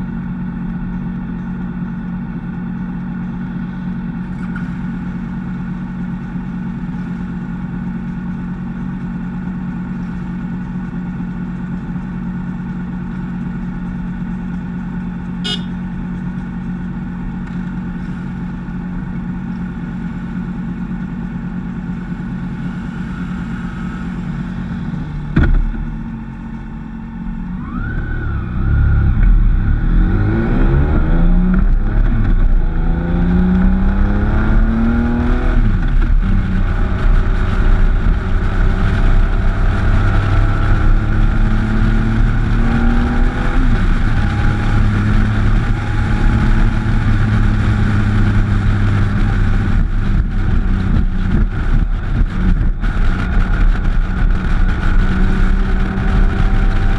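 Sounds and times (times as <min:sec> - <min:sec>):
motorcycle engine: 0:00.0 - 0:56.9
wind rushing over microphone: 0:28.2 - 0:56.9.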